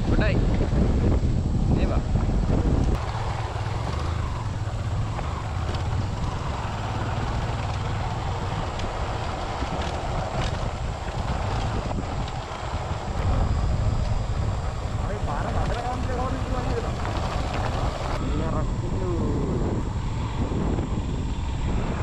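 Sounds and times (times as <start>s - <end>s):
motorcycle engine running: 0.0s - 22.0s
wind buffeting microphone: 0.0s - 22.0s.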